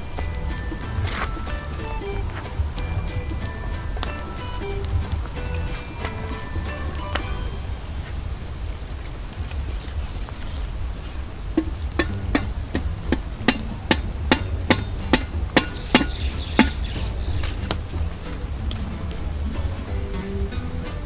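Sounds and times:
stick knocking on firewood: 0:11.6 - 0:19.2.

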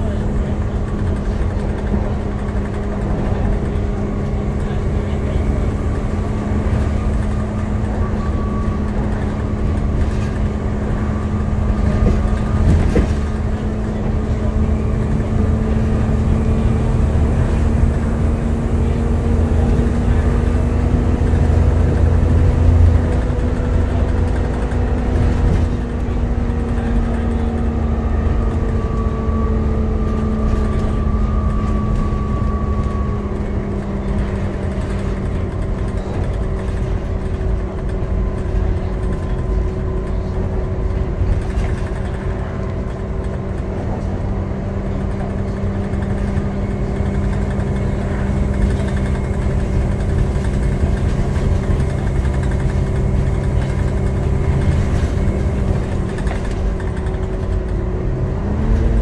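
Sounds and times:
bus engine drone with whine: 0:00.0 - 0:59.0
low road rumble: 0:00.0 - 0:59.0.

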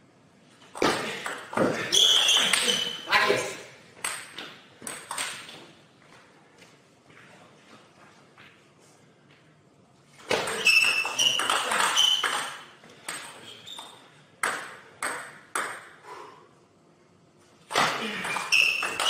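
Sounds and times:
table tennis ball pinging: 0:04.0 - 0:05.6, 0:10.3 - 0:16.0, 0:17.7 - 0:19.0.

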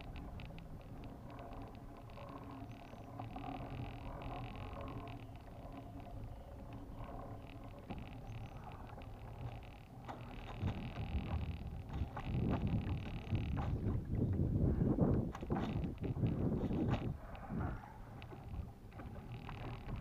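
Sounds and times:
fishing reel being cranked: 0:00.0 - 0:13.8, 0:18.2 - 0:20.0
wind rumbling on microphone: 0:00.0 - 0:20.0.

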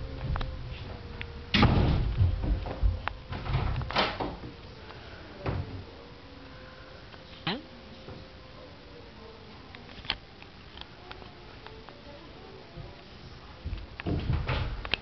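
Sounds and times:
faint steady hum: 0:00.0 - 0:15.0
door knocks and bumps: 0:01.5 - 0:04.5, 0:13.7 - 0:14.8.

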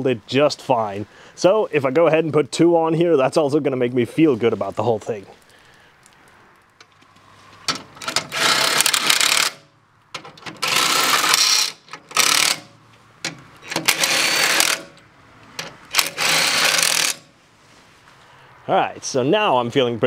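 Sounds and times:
impact driver bursts: 0:08.0 - 0:09.7, 0:10.5 - 0:12.8, 0:13.6 - 0:15.0, 0:15.9 - 0:17.3.

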